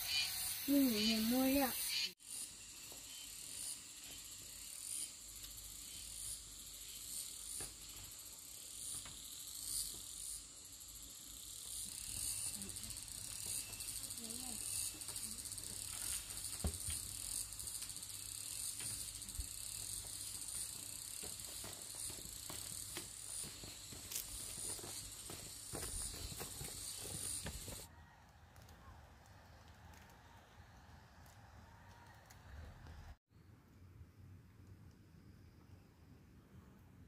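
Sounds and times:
insects chirring: 0.0 - 27.9.

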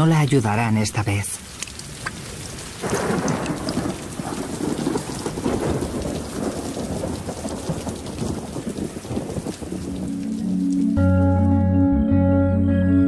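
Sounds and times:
heavy rain pouring: 0.0 - 11.6
rolling thunder rumble: 1.9 - 11.0.

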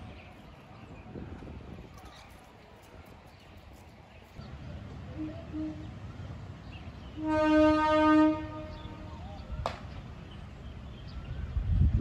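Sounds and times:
train air horn blast: 5.1 - 6.0, 7.2 - 9.1.

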